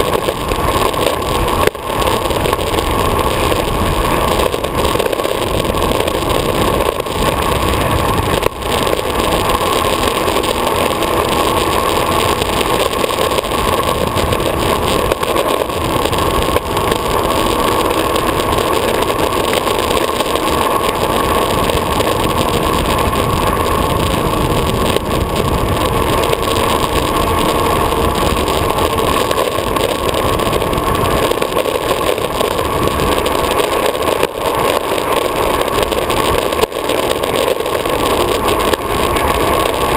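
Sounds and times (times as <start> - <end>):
skateboard wheels rolling on asphalt: 0.0 - 39.9.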